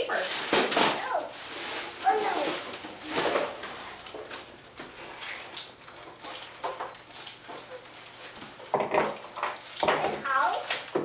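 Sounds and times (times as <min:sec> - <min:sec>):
wrapping paper rustling and tearing: 0:00.0 - 0:11.0.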